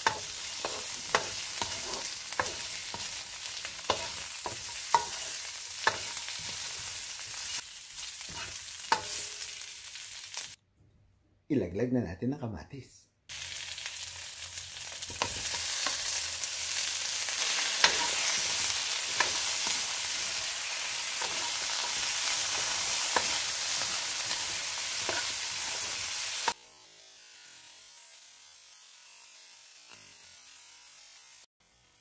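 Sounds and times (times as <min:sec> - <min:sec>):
spatula scraping and tapping wok: 0:00.0 - 0:07.6, 0:08.2 - 0:09.6, 0:15.0 - 0:16.3, 0:17.2 - 0:26.6
vegetables sizzling in hot oil: 0:00.0 - 0:10.6, 0:13.3 - 0:32.0.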